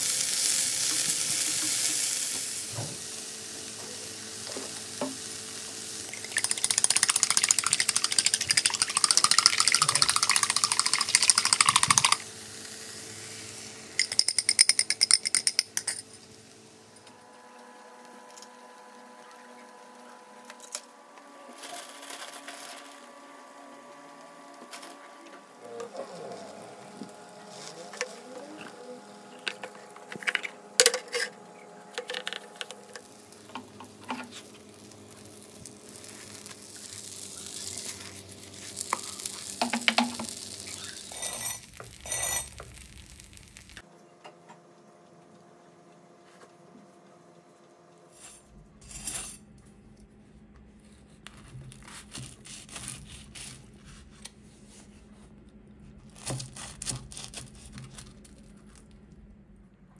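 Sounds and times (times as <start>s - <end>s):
egg sizzling in a frying pan: 0.0s - 15.6s, 32.2s - 43.8s
pan and plate clinking: 14.0s - 16.2s, 29.5s - 31.4s.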